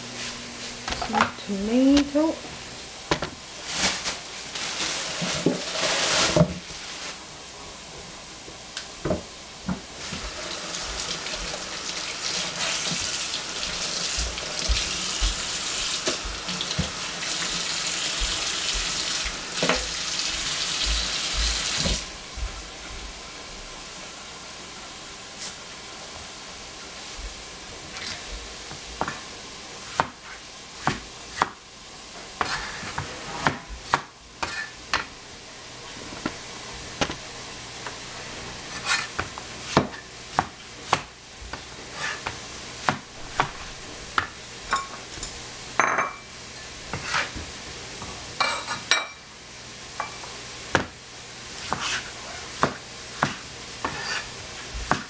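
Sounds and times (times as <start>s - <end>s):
water running from tap: 10.0s - 22.1s.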